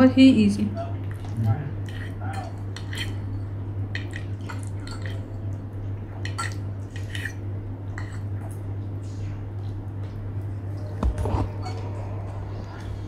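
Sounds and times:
steady low hum: 0.0s - 13.0s
fork clinking and scraping on plate: 1.8s - 3.4s, 6.2s - 8.3s.

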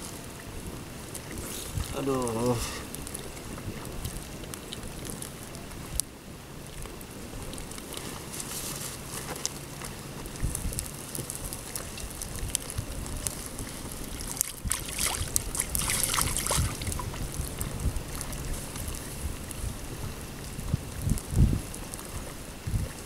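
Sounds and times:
wind buffeting microphone: 0.0s - 23.0s
water splashing: 6.6s - 19.8s.

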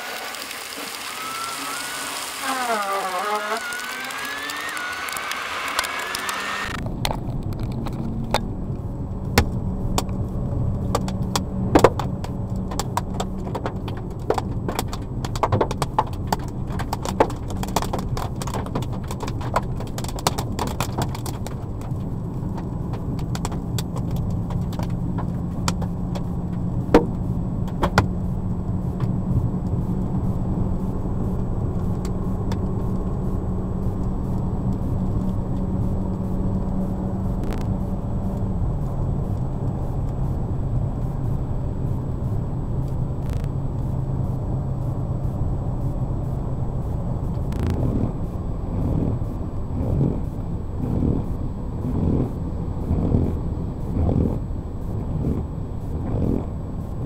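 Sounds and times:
car engine and road drone: 0.0s - 57.0s
sharp clicks and taps: 10.8s - 28.1s.

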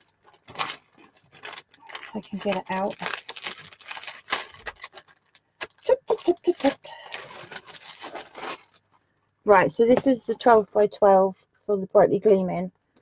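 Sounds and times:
packaging rustling and crinkling: 0.0s - 9.0s.

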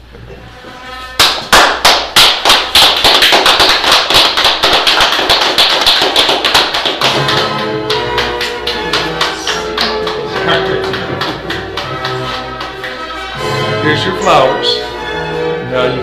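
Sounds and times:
people clapping: 1.2s - 13.4s.

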